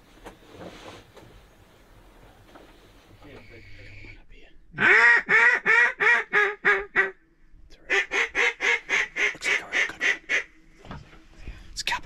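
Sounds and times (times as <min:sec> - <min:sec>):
duck quacking: 0:04.8 - 0:07.2, 0:07.9 - 0:10.6.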